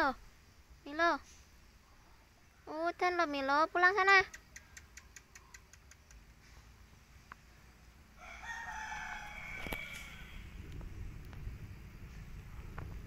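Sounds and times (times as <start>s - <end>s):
rooster crowing: 8.2s - 10.6s.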